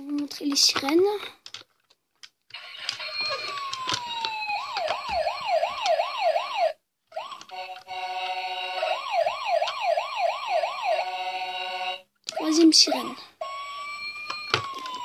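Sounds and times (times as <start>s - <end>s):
toy electronic siren wailing: 2.5s - 12.5s, 13.4s - 15.0s.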